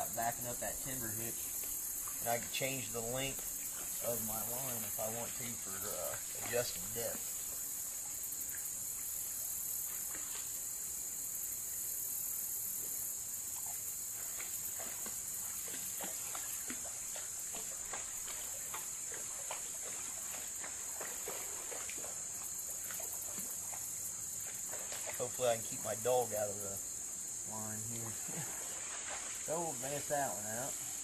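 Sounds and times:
high-pitched insect chorus: 0.0s - 31.0s.

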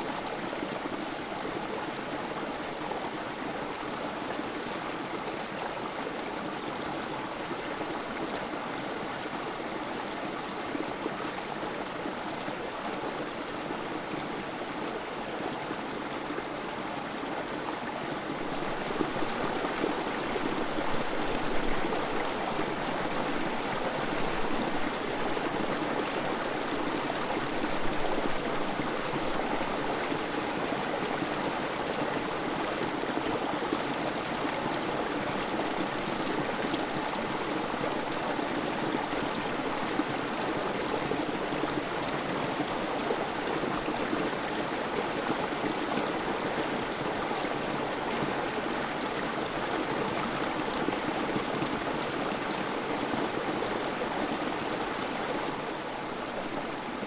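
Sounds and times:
creek water running over rocks: 0.0s - 57.0s.

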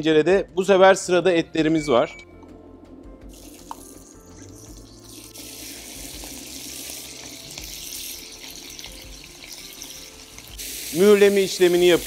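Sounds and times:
meat sizzling in butter: 3.3s - 12.0s.

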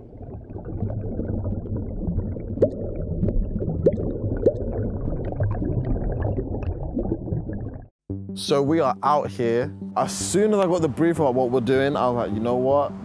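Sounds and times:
low liquid rumble with bubbling: 0.0s - 8.0s
short rising bloops: 0.0s - 8.0s.

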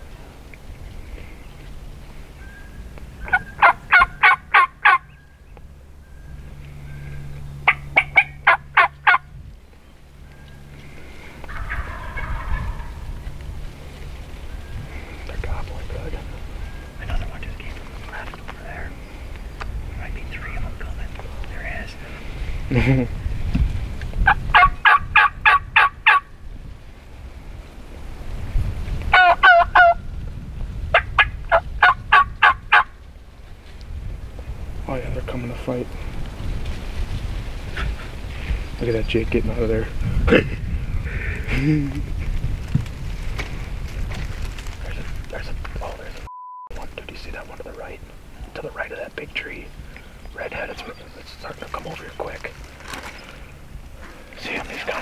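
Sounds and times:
wild turkey calling: 0.8s - 22.2s, 24.2s - 26.3s, 29.1s - 30.0s, 30.9s - 33.0s, 46.8s - 55.0s
turkey yelping: 2.4s - 5.2s, 7.6s - 9.3s, 11.4s - 13.3s, 24.2s - 26.3s, 29.1s - 30.0s, 31.0s - 32.9s
soft muffled noise: 10.3s - 24.2s, 43.5s - 55.0s.

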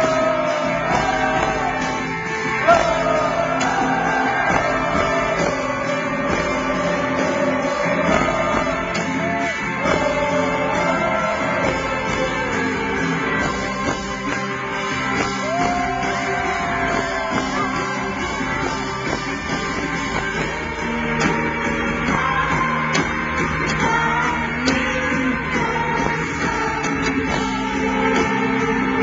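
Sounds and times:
live rock band playing: 0.0s - 29.0s
person singing: 2.6s - 14.4s, 21.8s - 29.0s.

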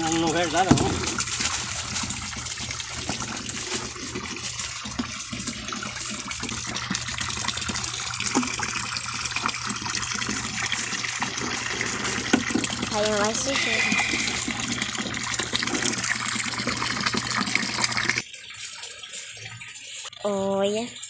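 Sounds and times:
hose water pouring into tub: 0.0s - 21.0s.

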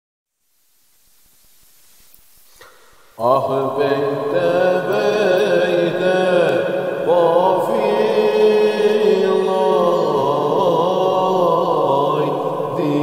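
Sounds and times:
voices chanting a devotional hymn: 3.2s - 13.0s.

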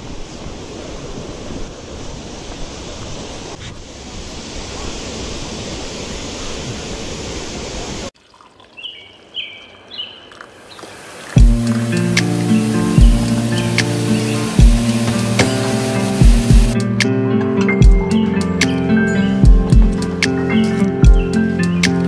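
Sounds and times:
steady rushing noise: 11.4s - 16.8s.

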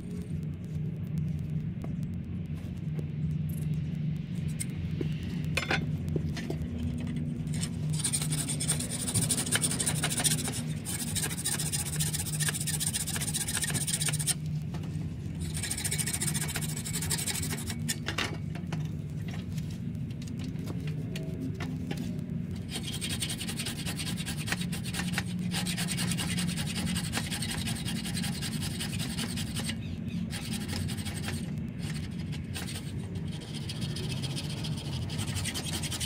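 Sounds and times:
steady low hum: 0.0s - 36.0s
wood scraping against saw blade: 7.5s - 14.4s, 15.4s - 18.1s, 22.6s - 36.0s.

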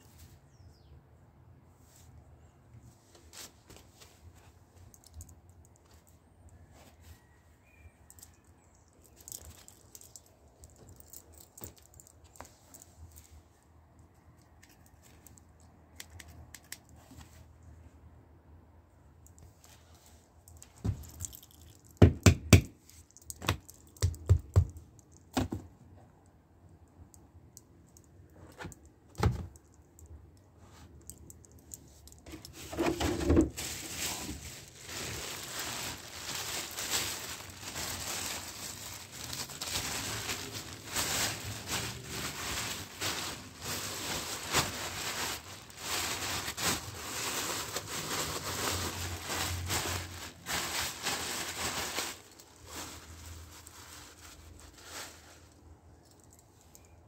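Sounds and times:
plastic bag crinkling: 8.1s - 13.3s, 20.5s - 22.0s, 31.2s - 57.0s.

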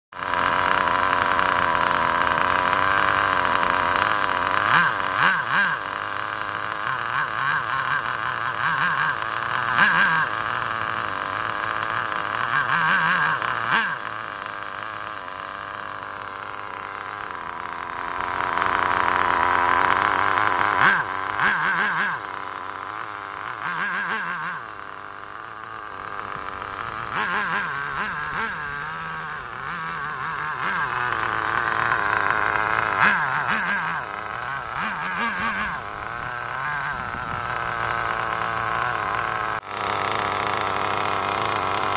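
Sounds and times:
small nitro engine buzzing and revving: 0.1s - 41.9s.

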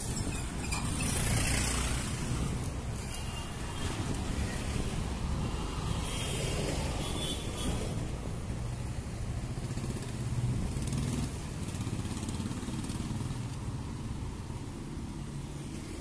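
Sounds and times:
passing cars and motorbikes: 0.0s - 16.0s.

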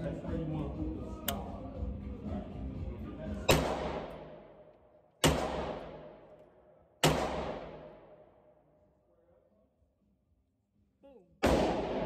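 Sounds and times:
rifle shots echoing indoors: 3.5s - 8.8s, 11.4s - 12.0s.

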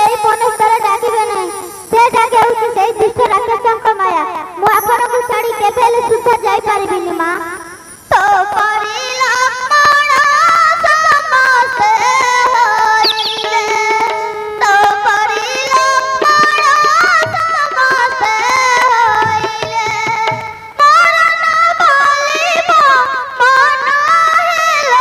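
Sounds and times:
drums and instruments: 4.6s - 21.4s
high voice singing: 8.1s - 19.2s.

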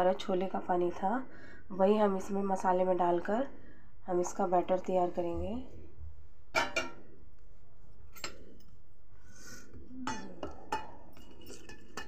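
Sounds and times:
spoon clinking on metal bowl: 10.1s - 12.0s.

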